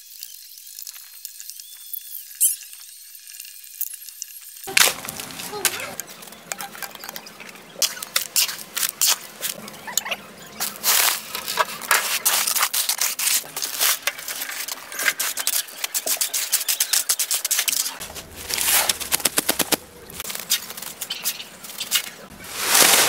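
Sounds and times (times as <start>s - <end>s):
shovel scraping concrete mix: 4.7s - 23.0s.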